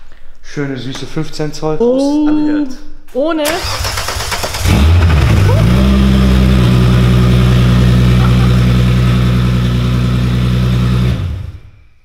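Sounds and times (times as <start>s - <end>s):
car engine idling: 3.6s - 11.8s.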